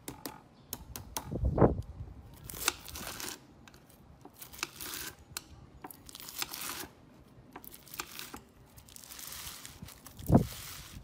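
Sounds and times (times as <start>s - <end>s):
knife crunching through slime: 4.3s - 5.2s, 6.0s - 7.0s.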